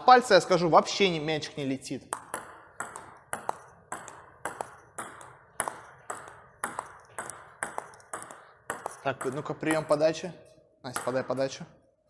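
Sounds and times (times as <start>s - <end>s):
table tennis ball bouncing: 2.0s - 10.2s, 10.9s - 11.8s.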